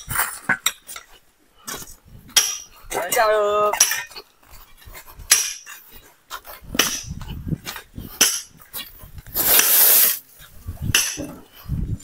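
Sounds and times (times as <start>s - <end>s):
pickaxes striking rocky soil: 9.3s - 10.2s, 10.8s - 11.4s
scrape of earth: 9.3s - 10.5s.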